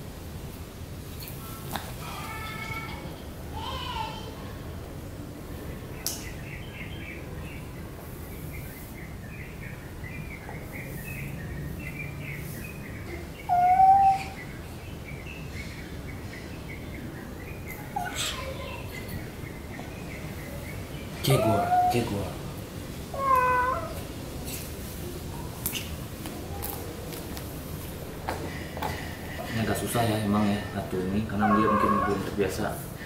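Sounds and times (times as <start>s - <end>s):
small birds twittering: 5.3s - 33.0s
cat meowing: 13.5s - 14.4s, 21.3s - 22.1s, 23.1s - 24.0s, 31.4s - 32.3s.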